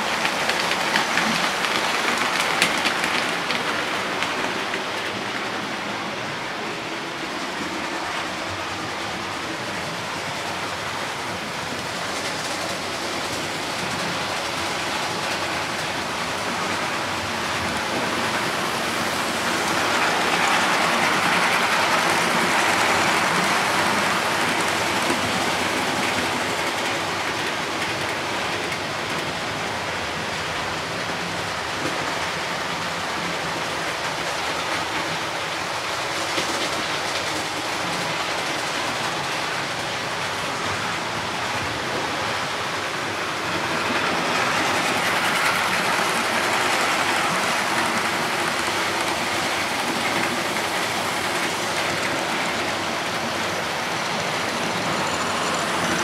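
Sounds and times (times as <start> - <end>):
model train wheels rattling on rails: 0.0 - 56.0.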